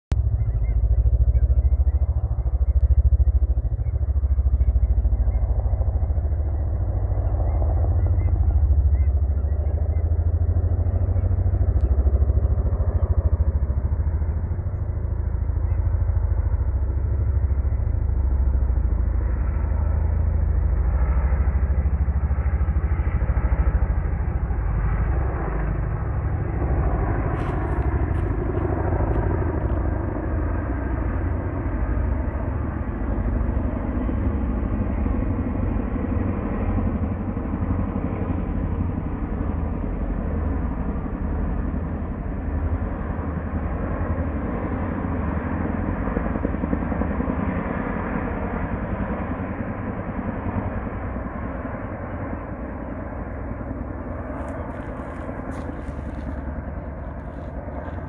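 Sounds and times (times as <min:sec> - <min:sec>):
helicopter rotor thudding: 0:26.4 - 0:31.4.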